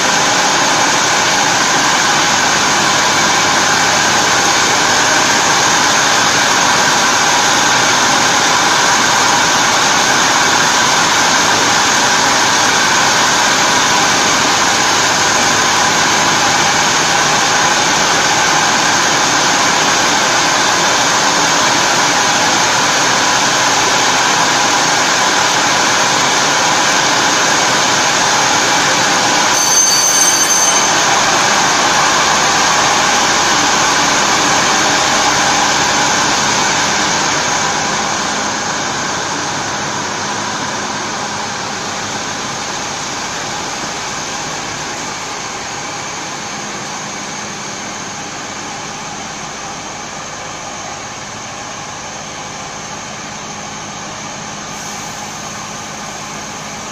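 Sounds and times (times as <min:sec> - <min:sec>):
machinery hissing: 0:54.0 - 0:56.9.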